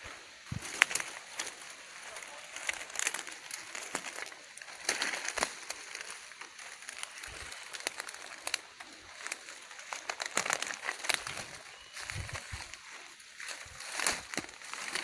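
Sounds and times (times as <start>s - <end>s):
dry leaves and twigs crackling: 0.0s - 15.0s
steady high hiss: 0.0s - 15.0s.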